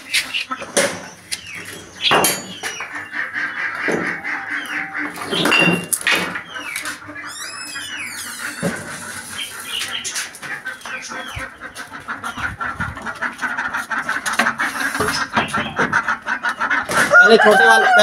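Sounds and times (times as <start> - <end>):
chickens clucking: 0.0 - 18.0
small birds chattering: 0.0 - 18.0
rooster crowing: 17.1 - 18.0.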